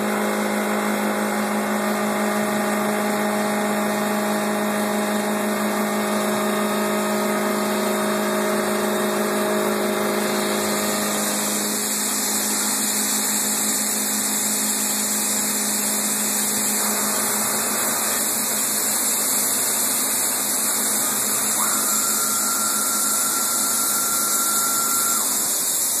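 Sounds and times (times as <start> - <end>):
wood lathe hum: 0.0 - 26.0
hiss of wood being cut: 6.9 - 26.0
thin high whine: 20.6 - 26.0.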